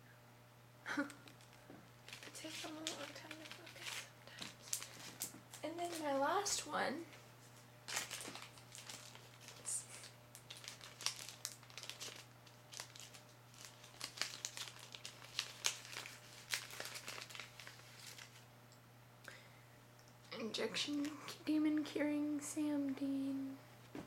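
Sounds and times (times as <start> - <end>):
plastic bag crinkling: 1.2 - 6.6, 7.9 - 18.5.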